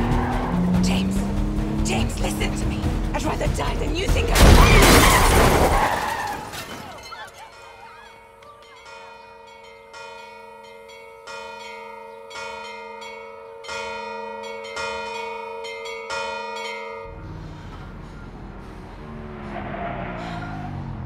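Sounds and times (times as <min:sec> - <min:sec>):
church bell tolling: 0:07.4 - 0:17.2
low engine rumble: 0:17.1 - 0:21.0.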